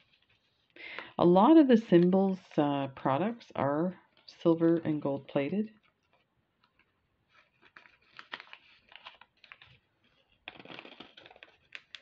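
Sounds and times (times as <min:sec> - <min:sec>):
plastic bag crinkling: 0:05.8 - 0:12.0.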